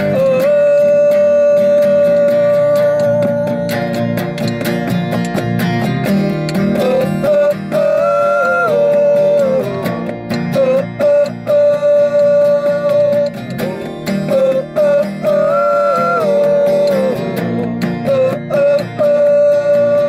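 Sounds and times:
acoustic guitar strummed: 0.0s - 20.0s
men singing held notes: 6.6s - 20.0s.

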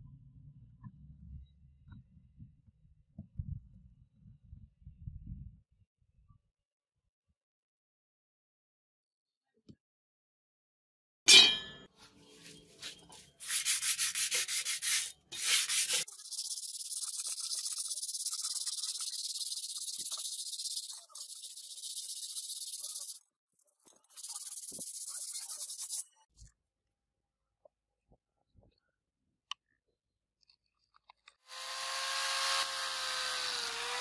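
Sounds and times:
sandpaper scrubbing metal: 12.8s - 23.2s, 24.0s - 26.1s.

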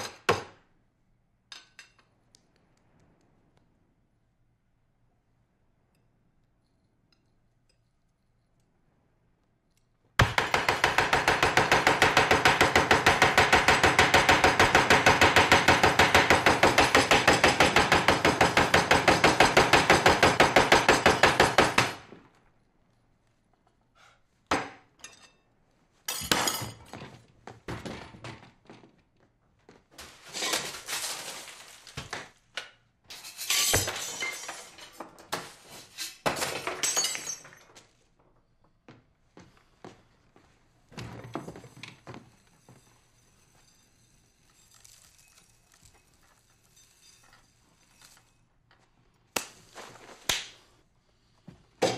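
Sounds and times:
tableware and glass clinking: 25.0s - 25.5s, 26.1s - 27.1s.

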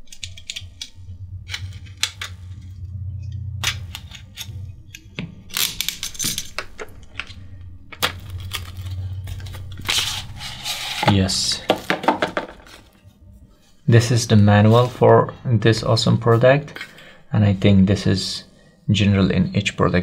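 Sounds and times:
low hum: 0.0s - 20.0s
packaging rustling and clicking: 5.5s - 13.0s.

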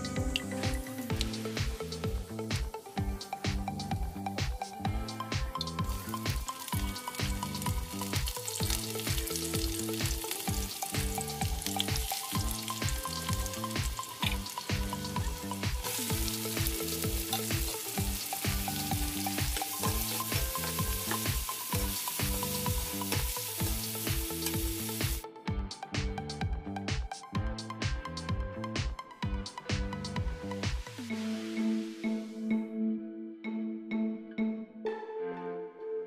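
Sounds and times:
oil sizzling: 0.0s - 25.2s
background music beat: 0.0s - 36.0s.

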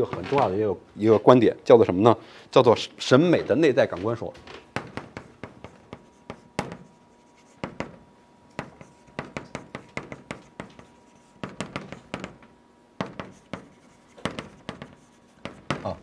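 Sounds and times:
chalk tapping and scratching: 4.8s - 12.4s, 13.0s - 16.0s.

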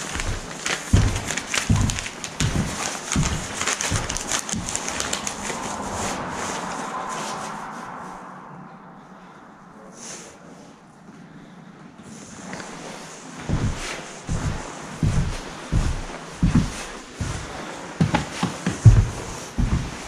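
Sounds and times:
footsteps on wooden floor: 0.0s - 5.8s, 12.5s - 20.0s.

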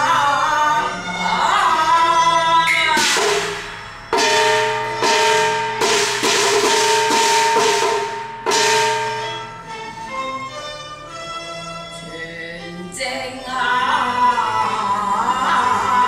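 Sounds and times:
opera percussion strikes ringing: 2.0s - 10.8s.

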